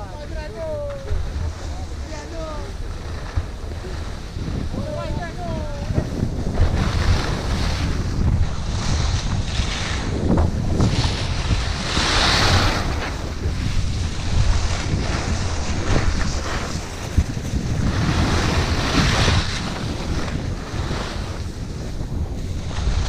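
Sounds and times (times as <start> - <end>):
skis scraping over snow: 0.0 - 23.0
wind buffeting microphone: 0.0 - 23.0.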